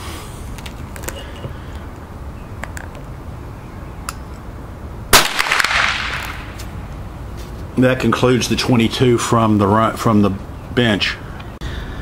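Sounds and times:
rifle gunshot: 5.1s - 6.6s.

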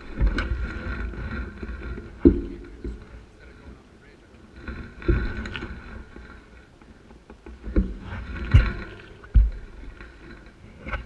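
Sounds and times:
heavy thumps on camera microphone: 7.3s - 10.0s.

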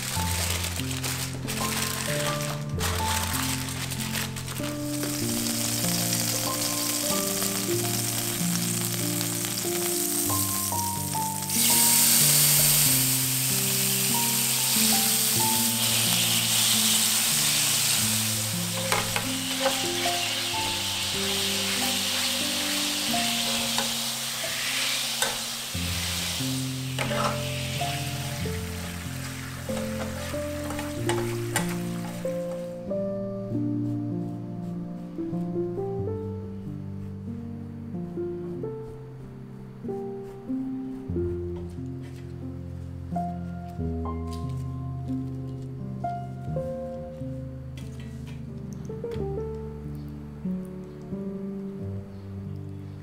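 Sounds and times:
food sizzling in frying pan: 0.0s - 32.6s
background music: 0.0s - 53.0s
utensil tapping pan: 18.6s - 25.5s, 29.7s - 32.2s.

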